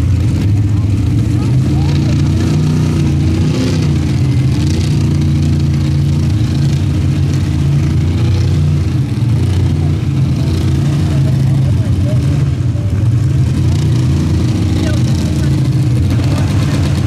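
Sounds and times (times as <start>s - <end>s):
race car engines idling loudly: 0.0s - 17.0s.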